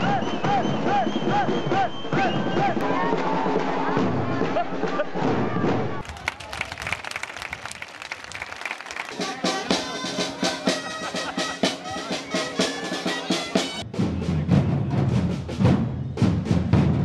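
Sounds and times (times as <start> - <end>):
crowd noise: 0.0 - 17.0
people clapping: 6.0 - 11.4
drum beats: 8.3 - 17.0.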